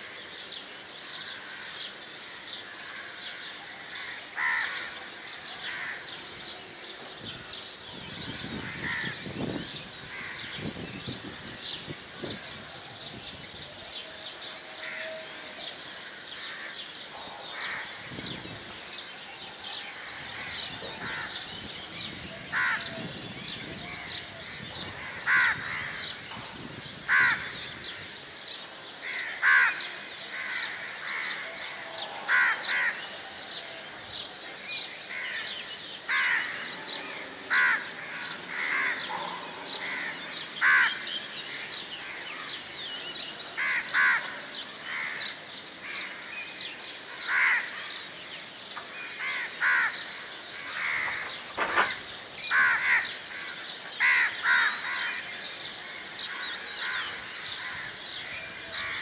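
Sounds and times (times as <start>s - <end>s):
small birds chirping: 0.0s - 59.0s
crows cawing: 1.1s - 6.1s, 8.6s - 9.3s, 10.1s - 10.6s, 17.5s - 18.0s, 20.0s - 21.5s, 22.5s - 22.9s, 24.4s - 26.2s, 27.1s - 27.7s, 29.0s - 33.1s, 35.1s - 42.6s, 43.6s - 46.3s, 47.1s - 48.1s, 49.0s - 55.4s, 56.3s - 59.0s.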